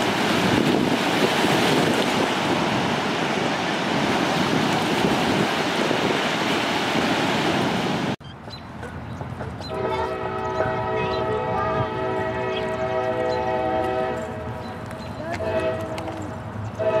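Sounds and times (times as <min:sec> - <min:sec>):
river water rushing: 0:00.0 - 0:08.2
wind buffeting microphone: 0:00.0 - 0:16.9.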